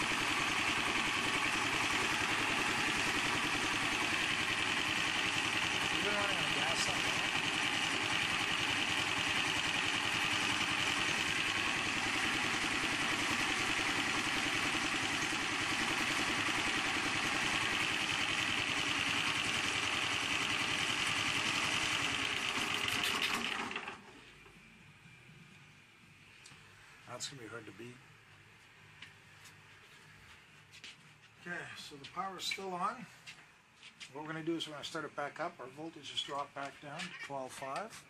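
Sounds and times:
gasoline engine running: 0.0s - 24.4s.

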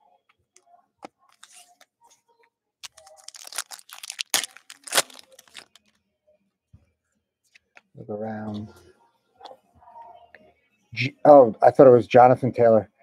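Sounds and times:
foil wrapper tearing and crinkling: 2.8s - 5.8s
sharp crackles: 2.8s - 5.8s.

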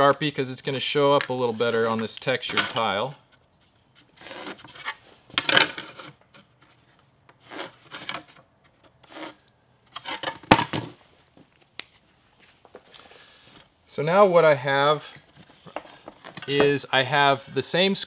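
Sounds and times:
marker drawing on textured tile: 9.0s - 9.4s.

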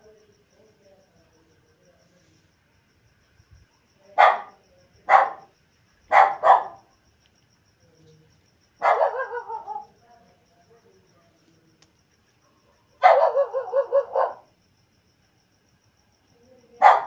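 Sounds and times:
dog barking: 4.2s - 5.5s, 6.1s - 6.9s, 8.8s - 9.9s, 12.4s - 14.5s, 16.8s - 17.0s.

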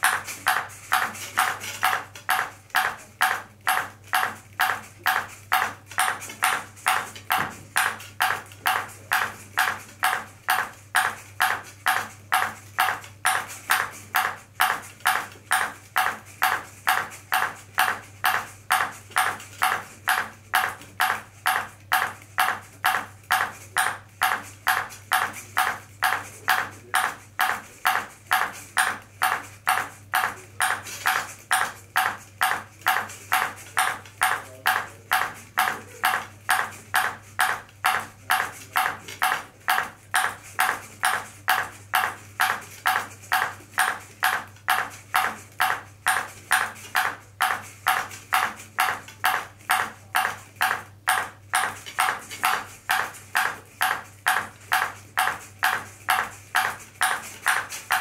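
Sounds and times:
ping pong ball bouncing: 27.9s - 58.0s.

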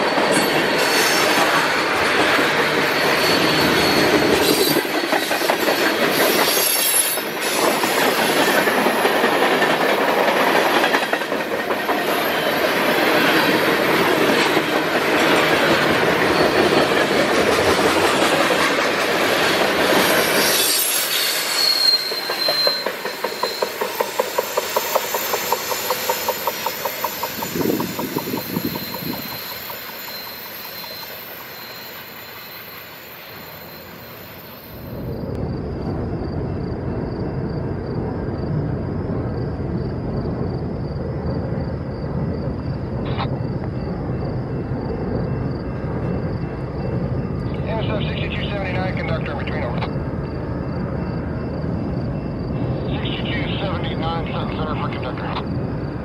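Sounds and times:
high wheel squeal: 0.0s - 1.7s, 2.6s - 8.3s, 19.9s - 35.2s
train wheels rolling on rail: 0.0s - 56.0s.

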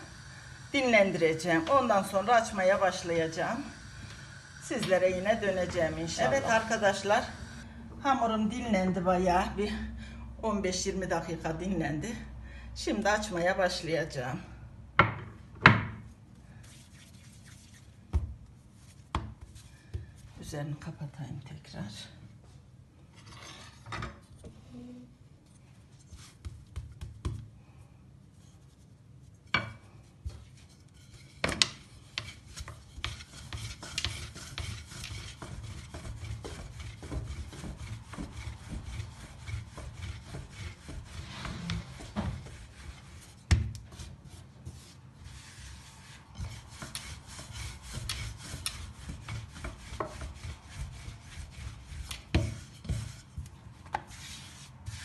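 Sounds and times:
rolling pin rubbing dough: 0.0s - 7.6s, 28.3s - 55.0s.

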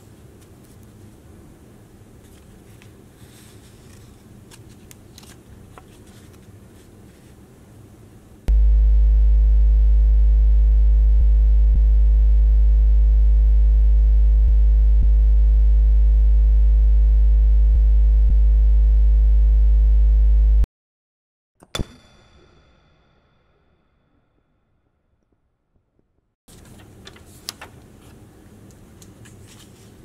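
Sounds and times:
loud low electronic buzz: 8.5s - 20.7s
sharp click with ringing tail: 21.6s - 23.7s.

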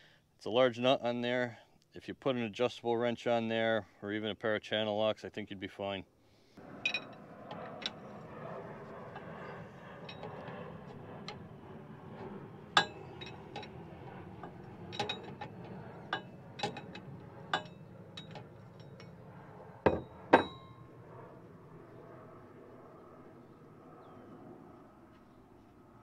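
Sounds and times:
metal clanks: 12.8s - 13.8s, 14.4s - 19.1s.

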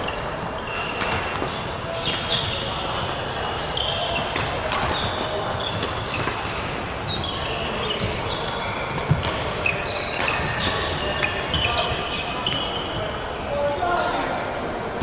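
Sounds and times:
shoes squeaking on wooden floor: 0.0s - 13.1s
racket hitting shuttlecock: 0.9s - 2.2s, 4.2s - 6.7s.

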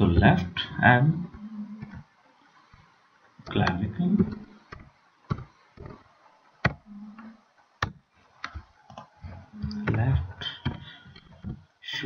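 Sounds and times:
keyboard and mouse clicks: 3.4s - 6.0s.

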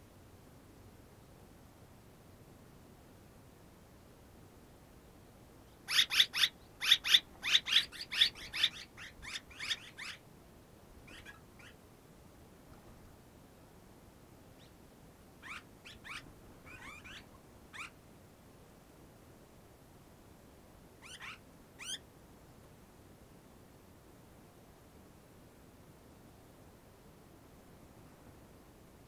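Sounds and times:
swallows chirping: 5.9s - 10.2s.

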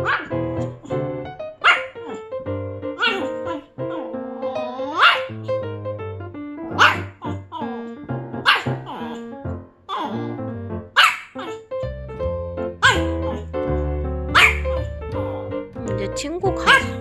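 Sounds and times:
small dog barking and yipping: 0.0s - 0.3s, 1.6s - 2.2s, 3.0s - 4.1s, 4.8s - 5.4s, 6.8s - 7.8s, 8.4s - 9.2s, 9.9s - 10.2s, 11.0s - 11.7s, 12.8s - 13.4s, 14.3s - 14.7s, 16.7s - 17.0s
background music: 0.0s - 17.0s.

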